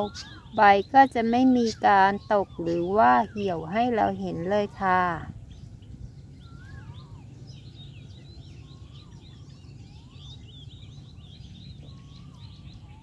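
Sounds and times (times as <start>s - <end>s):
bird whistled note: 0.0s - 0.9s, 6.4s - 7.2s
birds chirping: 0.0s - 13.0s
low background rumble: 0.0s - 13.0s.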